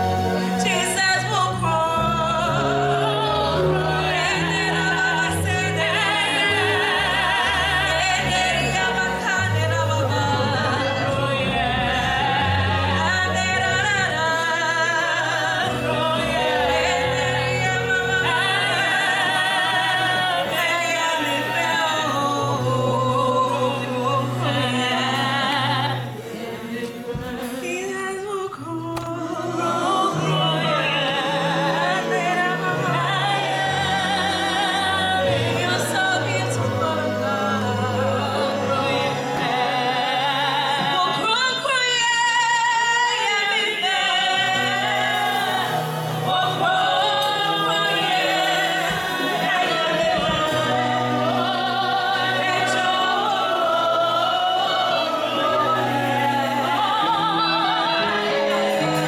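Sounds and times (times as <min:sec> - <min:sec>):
person singing with vibrato: 0:00.0 - 0:59.0.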